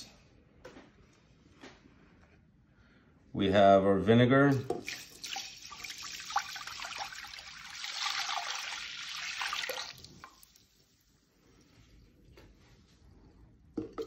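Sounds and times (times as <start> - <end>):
liquid pouring into a metal pot: 4.7 - 11.2.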